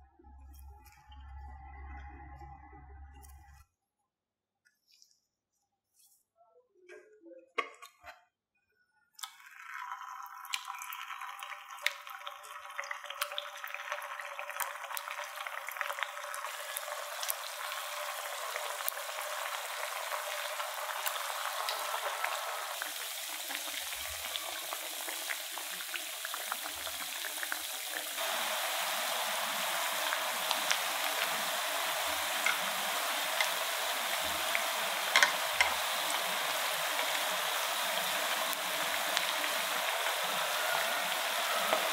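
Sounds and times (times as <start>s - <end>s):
patties deep-frying in hot oil: 9.2s - 41.9s
chopsticks clicking in pan: 35.1s - 35.8s.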